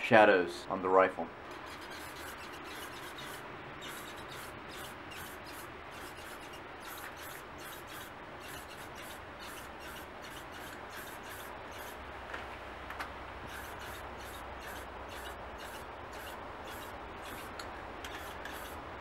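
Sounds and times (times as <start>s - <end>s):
spray paint can hissing: 1.7s - 12.0s.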